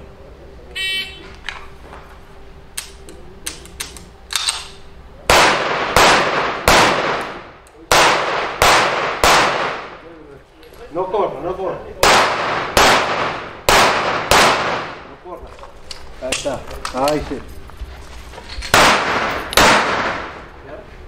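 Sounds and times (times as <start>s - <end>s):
loud pistol shots: 5.3s - 10.0s, 12.0s - 15.1s, 18.7s - 20.5s.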